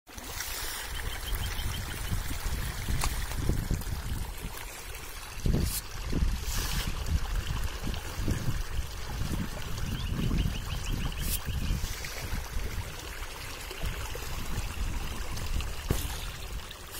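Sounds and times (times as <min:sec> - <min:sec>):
fish splashing in water: 0:11.0 - 0:16.9.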